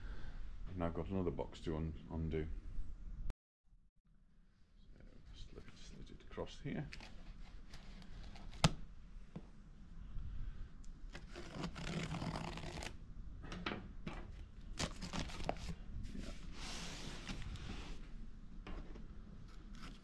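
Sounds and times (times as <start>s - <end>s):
knife slitting packing tape: 11.1s - 12.9s
cardboard scraping and rustling: 14.7s - 18.1s.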